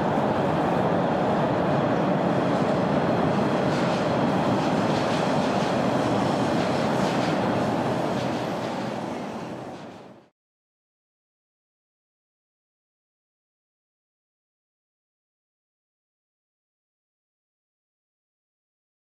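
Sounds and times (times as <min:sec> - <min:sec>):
steady rushing noise: 0:00.0 - 0:10.3.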